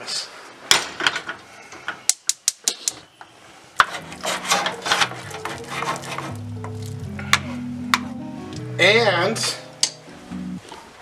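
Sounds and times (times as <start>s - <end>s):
utensil stirring food in a pan: 3.8s - 7.1s
background music: 3.8s - 10.7s.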